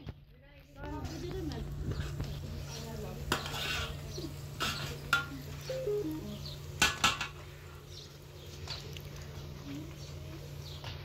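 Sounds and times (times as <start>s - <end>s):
metal ladle scraping pot: 3.3s - 4.0s.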